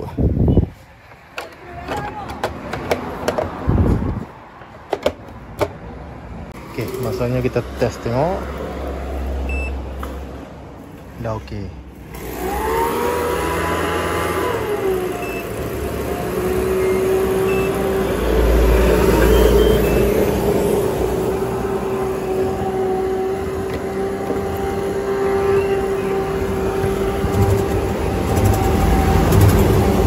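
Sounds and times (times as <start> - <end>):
short panel beeps: 9.5 - 9.8, 19.2 - 20.2.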